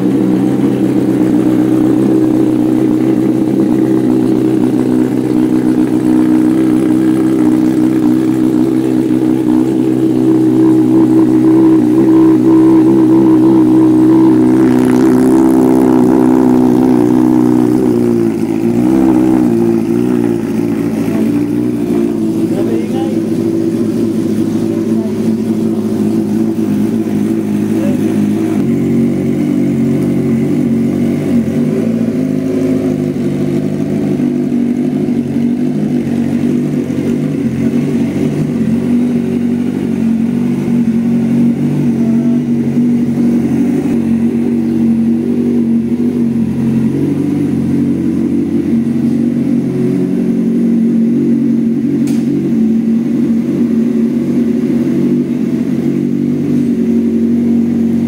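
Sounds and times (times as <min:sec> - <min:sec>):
motorcycle engine idling: 0:00.0 - 0:58.0.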